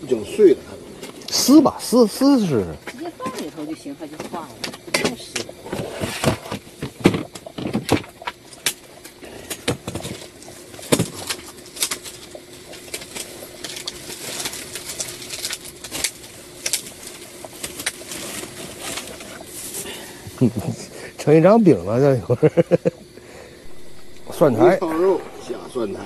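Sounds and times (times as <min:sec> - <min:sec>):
starch sheets crackling and snapping: 0:10.9 - 0:19.2.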